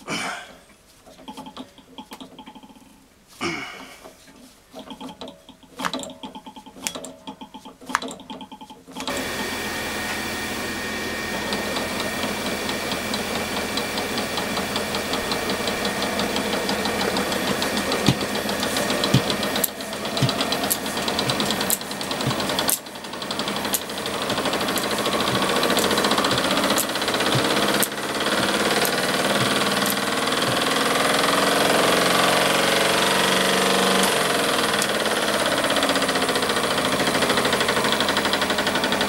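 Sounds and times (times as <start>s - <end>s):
engine rhythmic mechanical knocking: 4.8s - 39.0s
sharp clicks: 14.4s - 31.7s.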